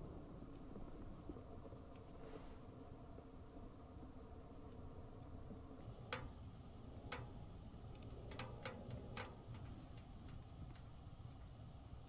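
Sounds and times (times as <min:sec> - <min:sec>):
wood stove ticking and popping: 0:05.8 - 0:12.0.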